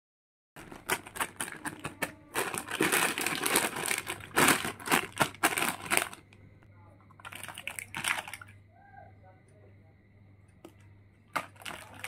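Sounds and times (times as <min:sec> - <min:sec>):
plastic toy pieces clicking: 0:00.6 - 0:06.3, 0:07.2 - 0:08.5
plastic bag crinkling: 0:00.6 - 0:06.4, 0:07.2 - 0:08.6, 0:11.3 - 0:12.0.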